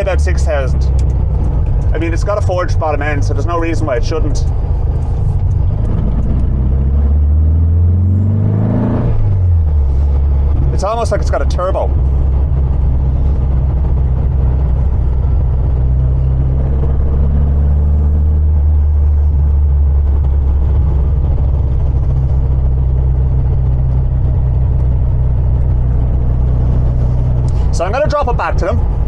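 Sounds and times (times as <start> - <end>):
car engine drone from inside cabin: 0.0 - 29.0.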